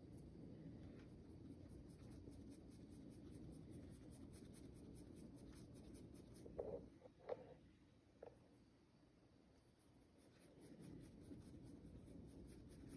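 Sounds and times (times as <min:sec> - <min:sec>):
paintbrush scratching on canvas: 0:01.3 - 0:06.8, 0:09.6 - 0:12.9.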